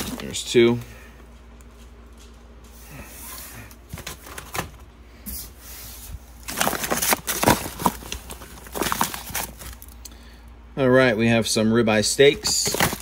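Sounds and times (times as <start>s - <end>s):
plastic packs crinkling: 0.0s - 0.6s, 6.4s - 10.1s, 12.2s - 13.0s.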